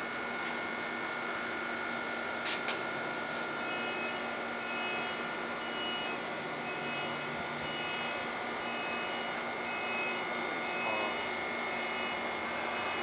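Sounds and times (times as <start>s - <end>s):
cooling fans humming: 0.0s - 13.0s
high electrical whining tones: 3.6s - 13.0s.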